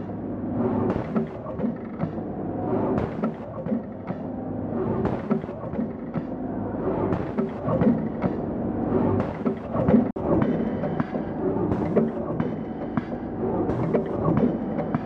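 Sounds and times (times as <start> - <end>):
machine clicks and knocks: 0.9 - 2.2, 3.0 - 4.3, 5.0 - 6.3, 7.1 - 8.4, 9.2 - 15.0.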